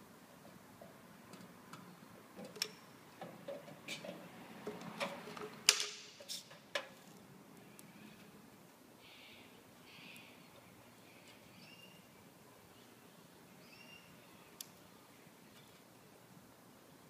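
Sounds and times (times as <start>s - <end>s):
caulking gun set down on concrete: 4.7s - 7.0s.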